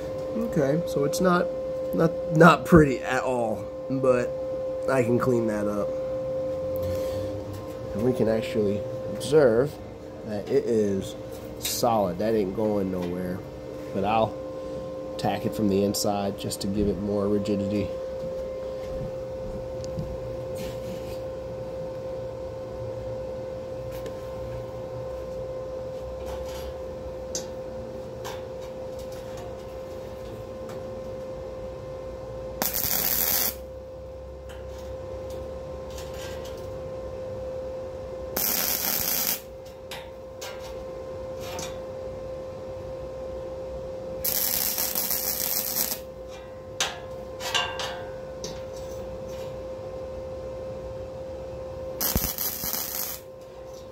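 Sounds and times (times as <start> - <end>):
wire welder humming: 32.5 - 36.8, 38.2 - 41.9, 44.1 - 49.6, 51.8 - 53.9
welding arc crackle: 32.6 - 33.7, 38.4 - 39.5, 44.2 - 46.1, 52.0 - 53.3.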